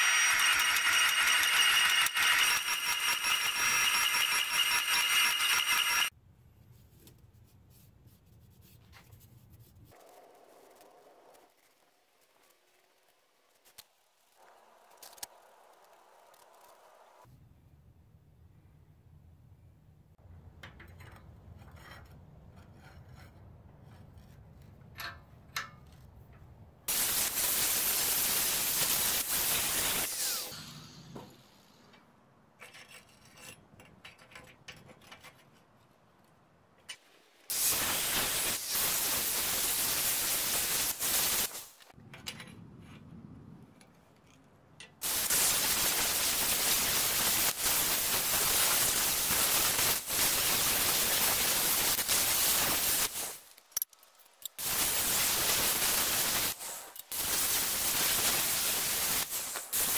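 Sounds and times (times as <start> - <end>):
angle grinder cutting steel: 0.0 - 6.1, 27.8 - 31.7
metal clicks and knocks: 20.4 - 21.8, 24.8 - 26.5, 31.9 - 35.8.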